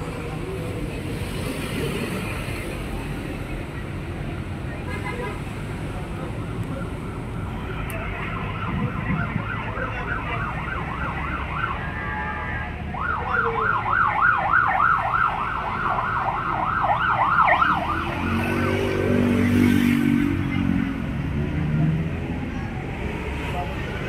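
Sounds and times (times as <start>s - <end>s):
emergency siren yelping: 8.1s - 18.8s.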